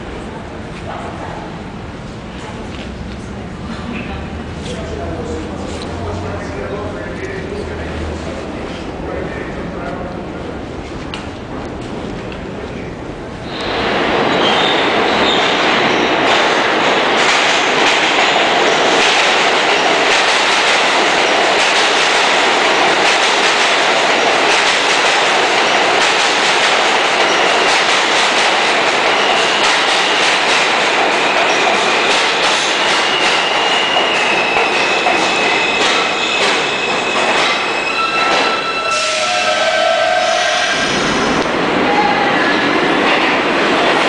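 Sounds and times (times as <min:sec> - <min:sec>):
subway train rumble: 0:00.0 - 0:44.0
high wheel squeal: 0:32.7 - 0:41.1.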